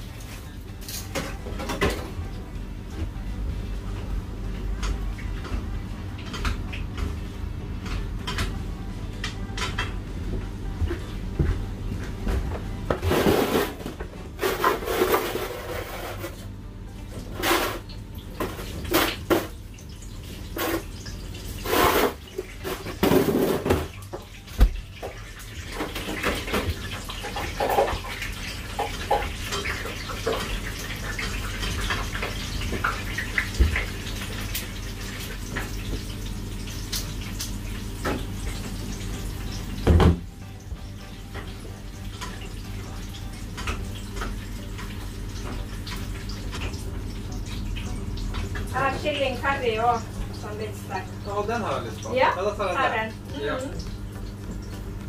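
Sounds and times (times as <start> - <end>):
utensils and metal trays clattering: 0.0 - 2.3, 12.9 - 16.6, 17.2 - 24.5, 25.4 - 40.2.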